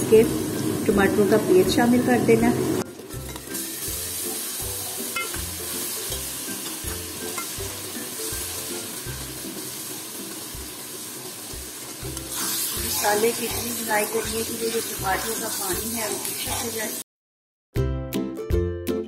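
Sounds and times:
tomato paste sizzling in hot oil: 0:00.0 - 0:17.0
steel spoon stirring in pot: 0:03.1 - 0:09.9, 0:11.9 - 0:16.8.

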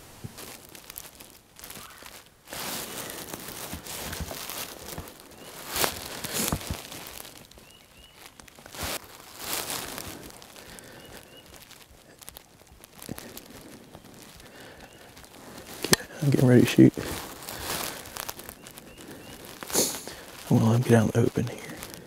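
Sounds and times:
crunches and clicks: 0:00.0 - 0:16.2
rustling and crinkling: 0:00.0 - 0:22.0.

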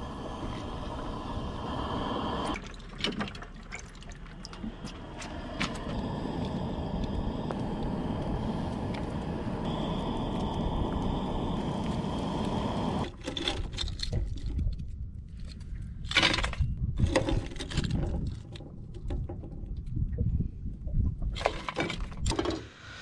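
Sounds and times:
water bubbling in a pot: 0:00.0 - 0:13.2.

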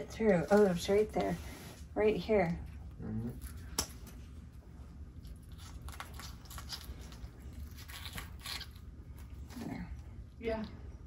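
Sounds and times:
shell crackling in a towel: 0:05.1 - 0:10.8.

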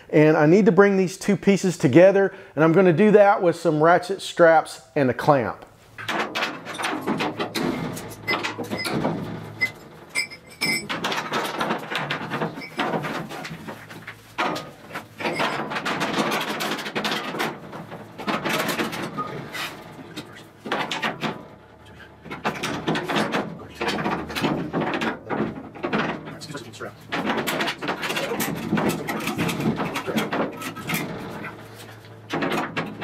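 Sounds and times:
metal hooks and ratchets clinking: 0:09.6 - 0:11.6.

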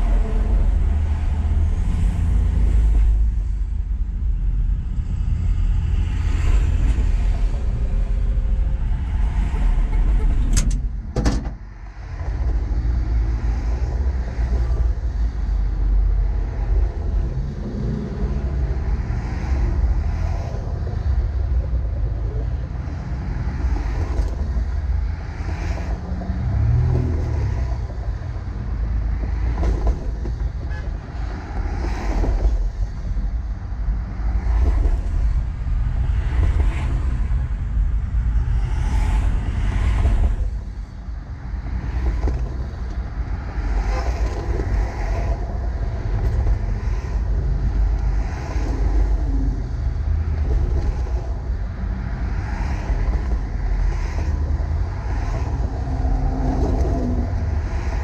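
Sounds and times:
vehicle engine and road rumble: 0:00.0 - 0:58.0
wind noise: 0:00.0 - 0:58.0.

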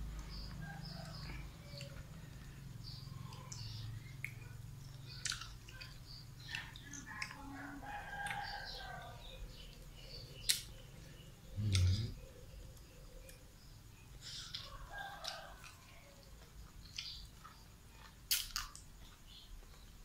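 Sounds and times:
rooster crowing: 0:00.6 - 0:02.1, 0:07.6 - 0:09.4, 0:14.7 - 0:16.3.

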